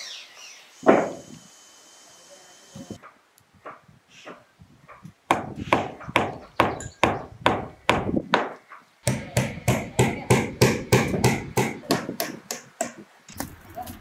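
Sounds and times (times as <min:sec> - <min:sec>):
hammer striking wooden roof: 0:00.8 - 0:01.2, 0:03.0 - 0:13.5.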